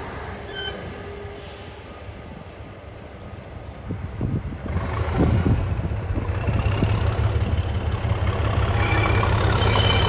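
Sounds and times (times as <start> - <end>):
diesel locomotive engine rumble: 0.0 - 10.0.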